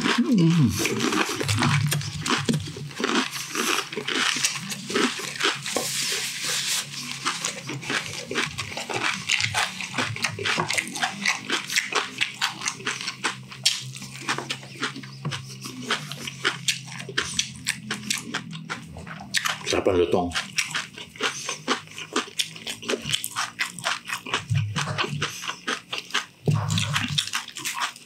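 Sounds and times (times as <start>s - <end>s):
crunchy food chewing: 0.0s - 28.0s
wet mouth sounds: 0.0s - 28.0s.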